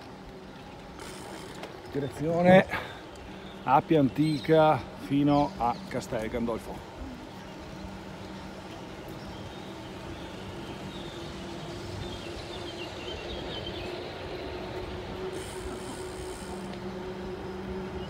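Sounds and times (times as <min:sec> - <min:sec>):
road noise from moving vehicle: 0:00.0 - 0:18.0.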